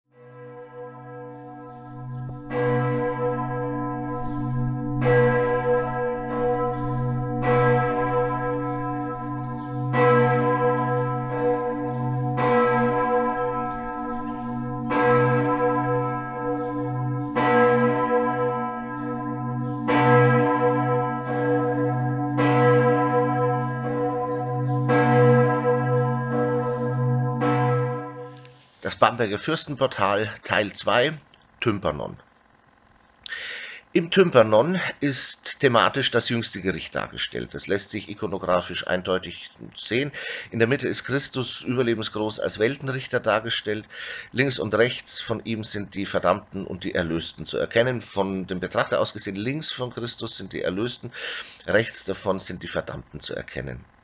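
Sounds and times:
church bell tolling: 0:00.1 - 0:28.6
deep hum: 0:01.0 - 0:28.5.

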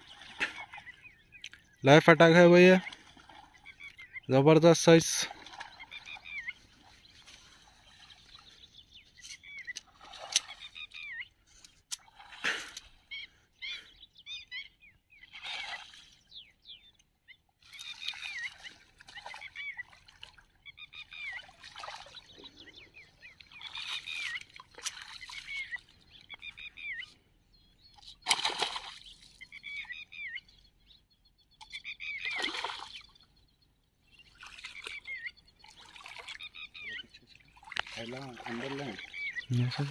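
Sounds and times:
birds chirping: 0:00.0 - 0:39.9
fish splashing in water: 0:28.2 - 0:29.4, 0:32.3 - 0:33.0.

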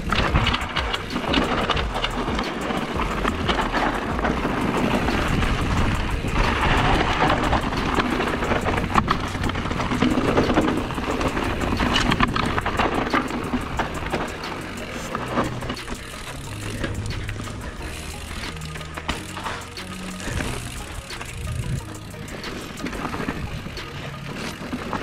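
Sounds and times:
wind rumbling on microphone: 0:00.0 - 0:14.4, 0:20.2 - 0:21.9
bike frame and chain rattling: 0:00.0 - 0:25.0
tyres rolling over dirt: 0:00.0 - 0:25.0.

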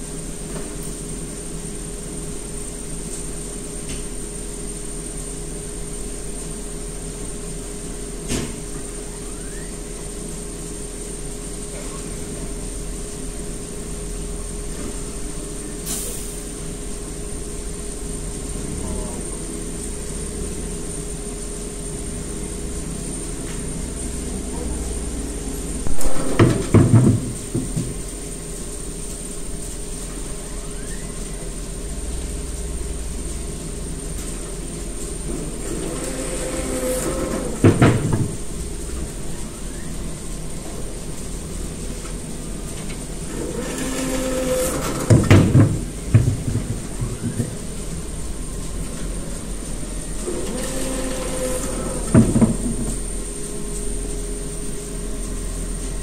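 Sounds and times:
high machine tone: 0:08.9 - 0:10.0
machine hum: 0:16.4 - 0:56.0
heavy clunks: 0:43.5 - 0:47.6
cutter machine humming: 0:50.1 - 0:53.1.

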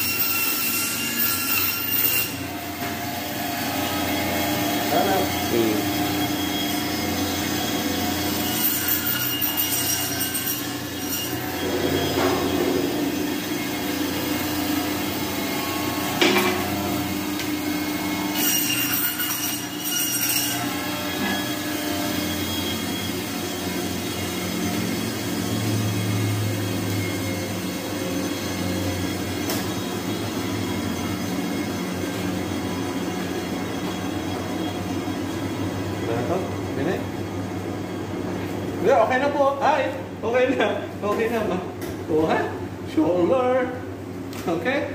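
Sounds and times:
band saw cutting bone: 0:00.0 - 0:28.3
machinery humming: 0:02.4 - 0:08.5, 0:10.8 - 0:18.3.

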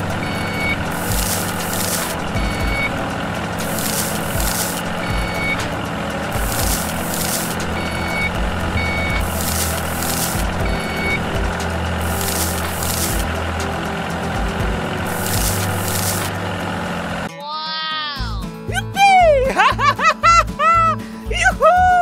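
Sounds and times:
reversing alarm beeps: 0:00.0 - 0:13.4
bursts of hiss: 0:00.0 - 0:17.3
vehicle engine hum: 0:00.0 - 0:17.3.

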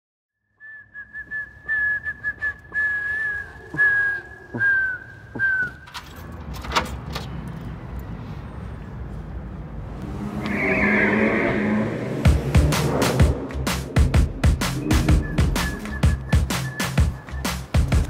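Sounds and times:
person whistling: 0:00.5 - 0:05.9, 0:14.8 - 0:18.0.

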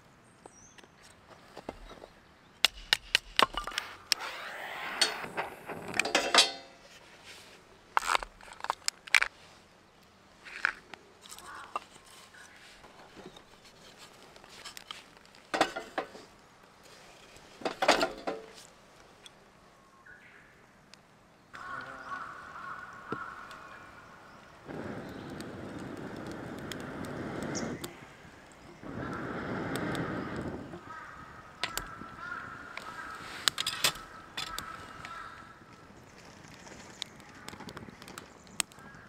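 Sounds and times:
cookware clinking and knocking: 0:06.0 - 0:06.7.

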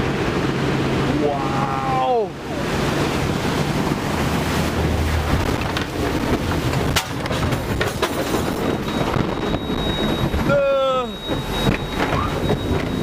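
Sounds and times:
rush of crashing water: 0:00.0 - 0:13.0
boat knocking: 0:02.8 - 0:13.0.

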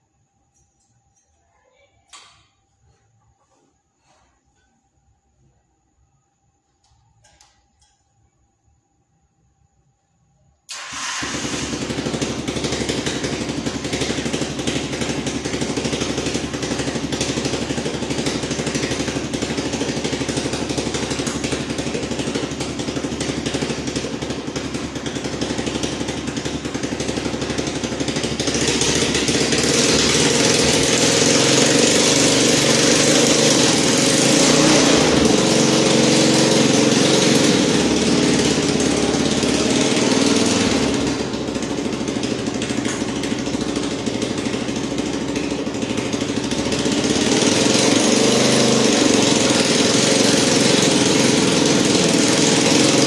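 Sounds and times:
small engine running and revving: 0:10.8 - 0:53.0.

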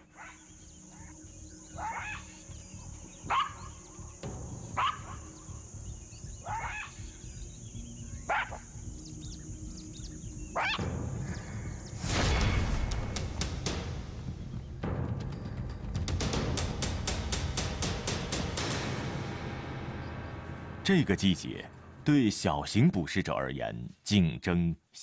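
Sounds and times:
jackals yelping barks: 0:00.0 - 0:09.0, 0:10.2 - 0:11.7
drum-led music: 0:01.1 - 0:21.5.

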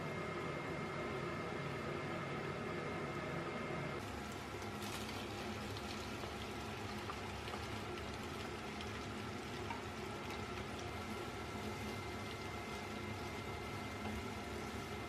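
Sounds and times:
meat and vegetables sizzling in pan: 0:04.0 - 0:15.0.

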